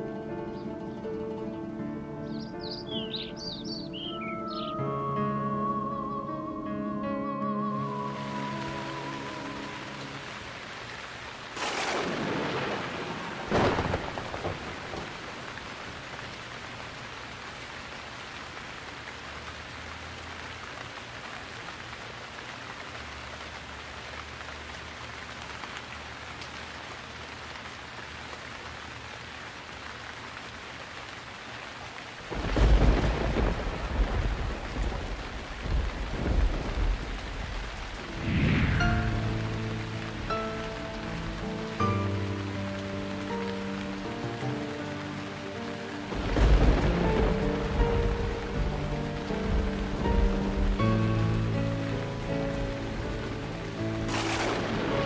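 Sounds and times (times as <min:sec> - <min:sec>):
heavy rain: 0:00.0 - 0:55.0
thunder claps: 0:11.6 - 0:15.5, 0:32.3 - 0:40.6, 0:46.1 - 0:50.8, 0:54.0 - 0:55.0
rolling thunder rumble: 0:11.6 - 0:15.7, 0:32.3 - 0:41.3, 0:46.1 - 0:51.5, 0:52.8 - 0:55.0.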